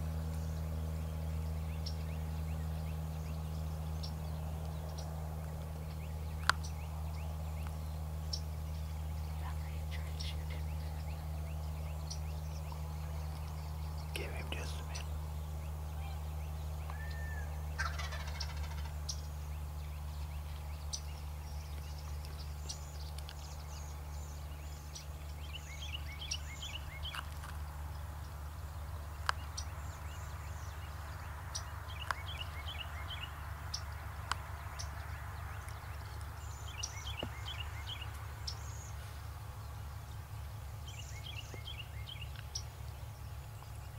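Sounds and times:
steady low hum: 0:00.0 - 0:43.9
turkey gobbling: 0:17.2 - 0:19.0.

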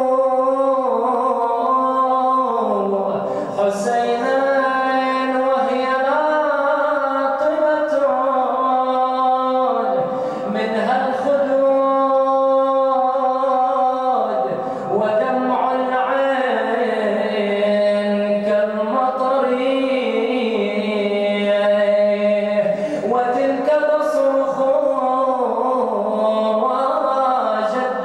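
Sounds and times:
man chanting a lament: 0:00.0 - 0:28.0.

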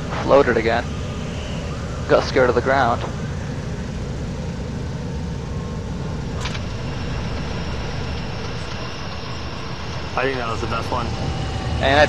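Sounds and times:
plane engine idling: 0:03.4 - 0:12.0.

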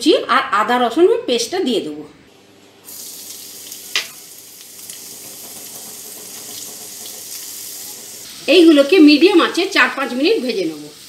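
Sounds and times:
onion sizzling in oil: 0:02.8 - 0:11.0.

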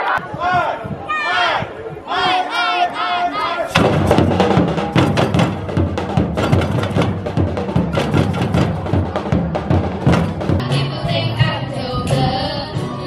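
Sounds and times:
group of drums playing: 0:03.7 - 0:12.2.

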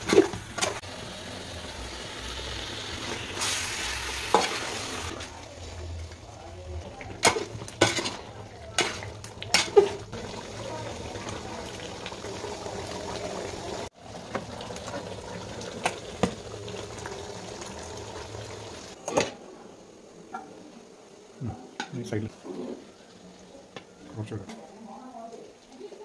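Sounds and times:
curry bubbling in a pot: 0:00.0 - 0:19.0.

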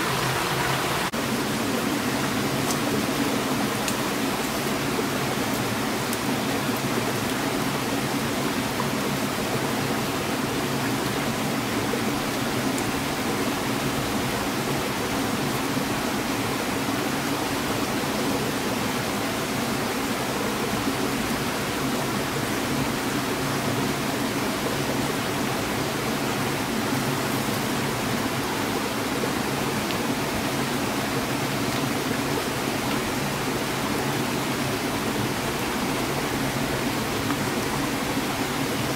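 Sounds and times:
stream water rushing: 0:00.0 - 0:38.9.

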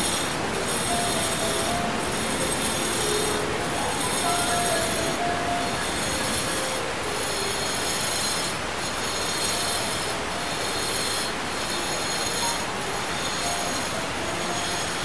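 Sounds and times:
angle grinder grinding stone: 0:00.0 - 0:15.0.

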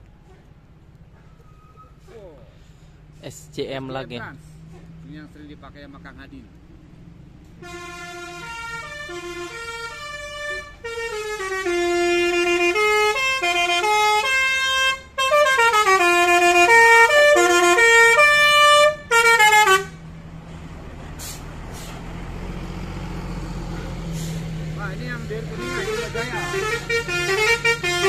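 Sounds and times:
coach engine running: 0:00.0 - 0:28.0
musical air horn playing a tune: 0:07.6 - 0:20.0, 0:25.6 - 0:28.0.

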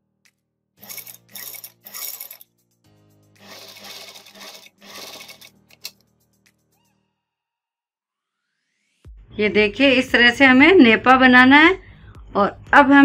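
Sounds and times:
background music: 0:00.0 - 0:07.3, 0:08.2 - 0:13.0
sewing machine stitching: 0:00.8 - 0:02.4, 0:03.4 - 0:05.9
sewing machine clicks: 0:03.4 - 0:06.0.

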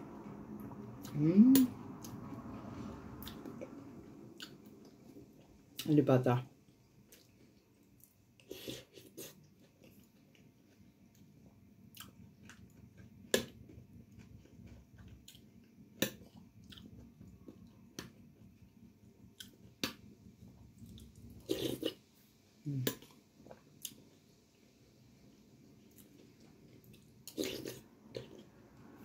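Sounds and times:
person chewing food: 0:06.7 - 0:18.6, 0:19.3 - 0:22.0, 0:25.9 - 0:28.6.

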